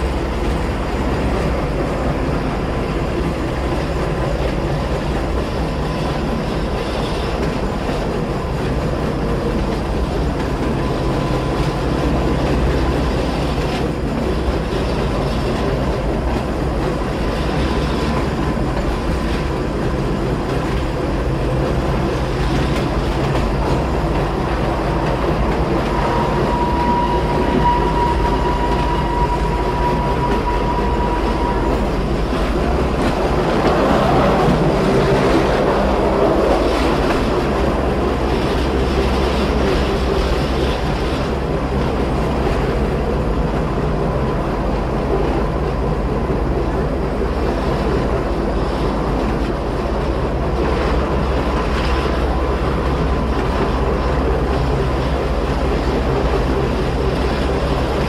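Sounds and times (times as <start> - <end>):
train running rumble: 0.0 - 58.0.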